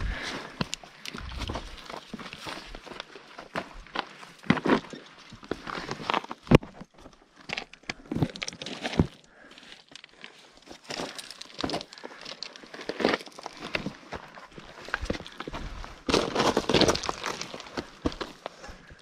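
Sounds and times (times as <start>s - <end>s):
footsteps on path: 0.0s - 7.6s, 10.4s - 19.0s.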